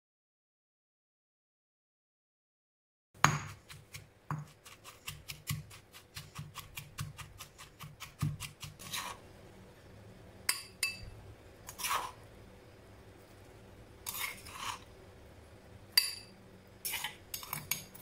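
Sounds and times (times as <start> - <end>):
stone pestle pounding in mortar: 3.2 - 9.0
spoon scraping mortar: 3.2 - 9.3, 10.5 - 12.3, 14.0 - 15.0, 16.8 - 18.0.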